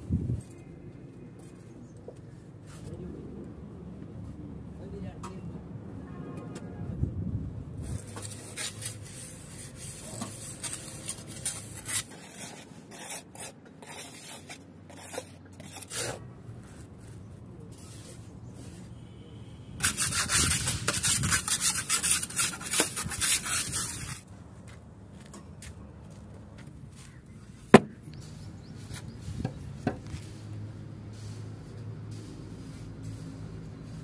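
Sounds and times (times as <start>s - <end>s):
trowel scraping wet mortar: 7.9s - 16.2s, 19.8s - 24.2s.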